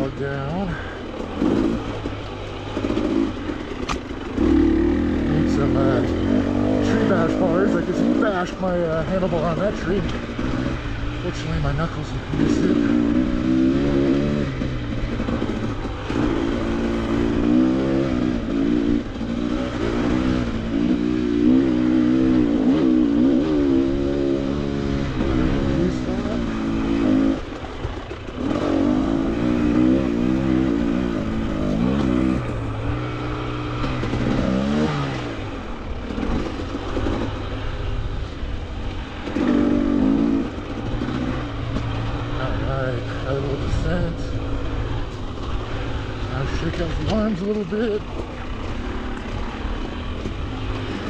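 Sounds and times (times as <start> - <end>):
dirt bike engine revving: 0.0 - 51.0.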